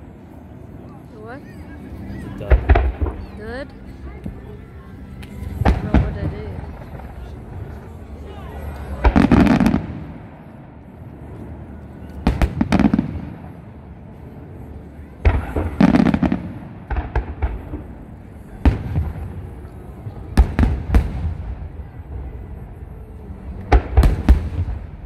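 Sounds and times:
firework shells booming: 0:02.5 - 0:03.4.

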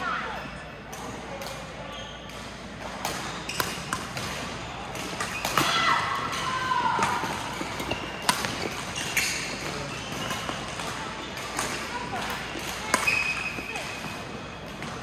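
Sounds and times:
sneakers squeaking on court: 0:01.8 - 0:05.6, 0:07.0 - 0:15.0.

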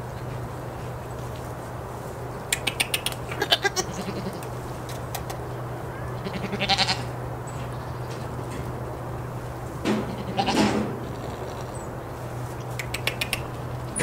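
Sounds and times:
steady low hum: 0:00.0 - 0:14.0
goat bleating: 0:03.3 - 0:04.6, 0:05.9 - 0:07.2, 0:09.9 - 0:11.9.

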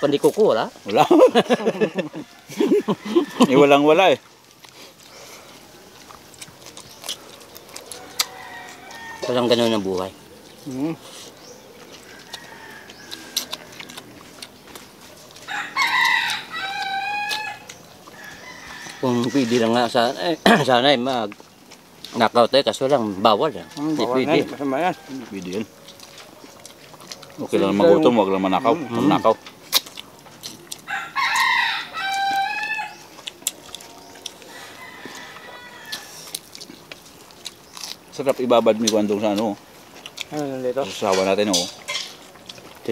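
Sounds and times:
rooster crowing: 0:01.4 - 0:04.2, 0:07.2 - 0:09.6, 0:11.8 - 0:14.3, 0:15.3 - 0:20.1, 0:23.0 - 0:25.7, 0:27.6 - 0:29.7, 0:30.8 - 0:33.2, 0:33.8 - 0:36.4.

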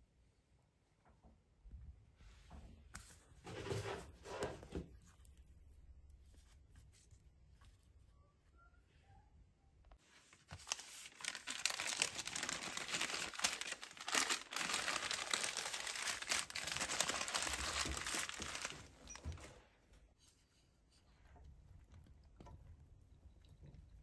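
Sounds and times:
paper crinkling: 0:10.0 - 0:19.5.

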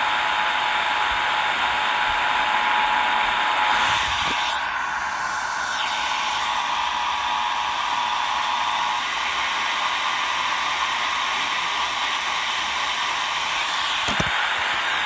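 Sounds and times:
radio static hiss: 0:13.4 - 0:15.0.

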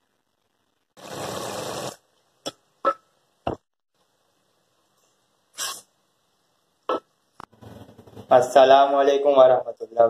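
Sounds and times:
hiss: 0:05.5 - 0:05.9.

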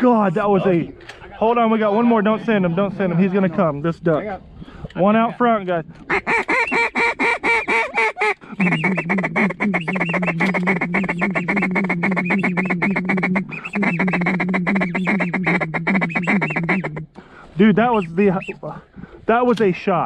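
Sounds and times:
duck call feed chuckle: 0:06.1 - 0:17.0
duck call quacks: 0:06.1 - 0:17.1.

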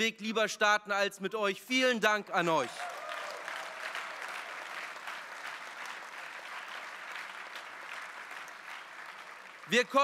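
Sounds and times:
large audience applauding: 0:02.6 - 0:10.0.

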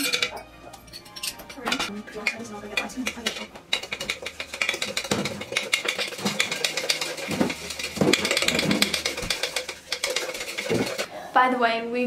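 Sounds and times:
spoon scraping a mug: 0:00.0 - 0:11.1.

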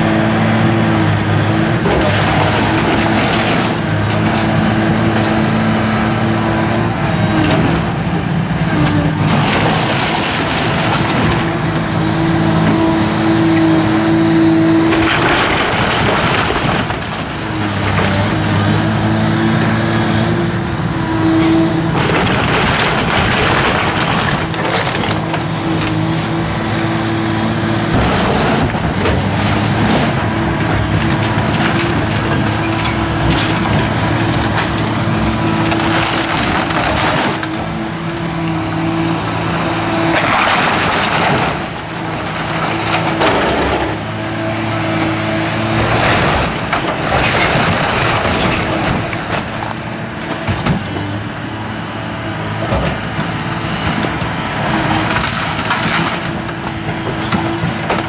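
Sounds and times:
excavator diesel engine running: 0:00.0 - 0:58.0
roofing crunching: 0:08.7 - 0:20.2, 0:21.1 - 0:58.0
timber cracking: 0:14.8 - 0:18.6, 0:21.9 - 0:26.9, 0:27.9 - 0:37.8.

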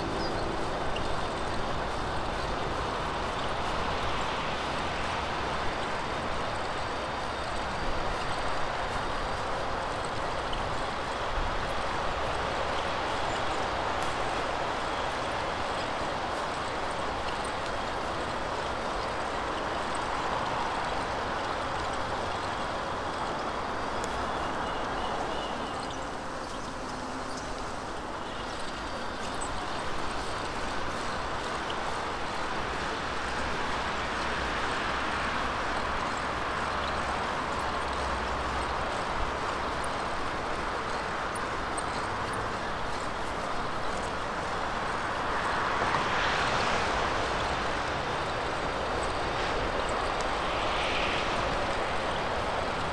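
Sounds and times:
road traffic: 0:00.0 - 0:52.9
strong wind rushing: 0:44.5 - 0:52.9
wind buffeting microphone: 0:46.7 - 0:52.9.

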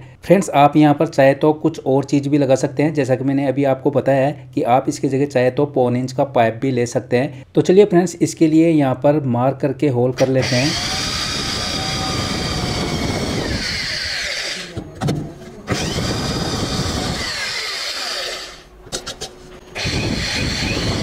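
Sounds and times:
electric drill boring plastic: 0:10.2 - 0:14.8, 0:15.7 - 0:18.7, 0:19.8 - 0:21.0.

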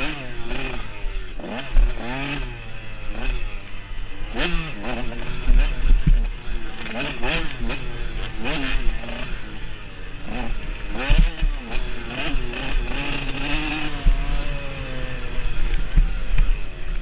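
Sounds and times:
dirt bike engine revving: 0:00.0 - 0:17.0
bike knocks and rattles: 0:05.4 - 0:06.3, 0:11.0 - 0:12.2.

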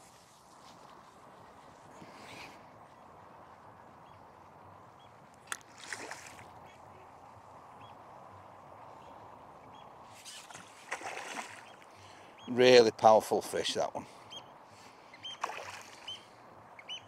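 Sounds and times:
fish splashing in river: 0:05.5 - 0:06.5, 0:10.3 - 0:11.8, 0:15.4 - 0:16.2.

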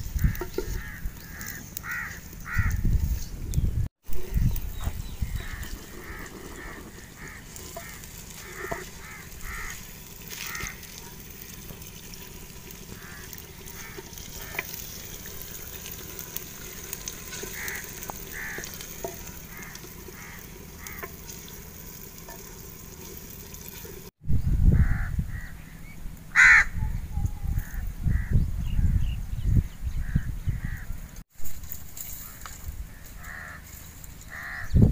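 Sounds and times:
bird calls: 0:00.2 - 0:10.9, 0:17.3 - 0:21.3
onions sizzling in a pot: 0:04.1 - 0:24.2.

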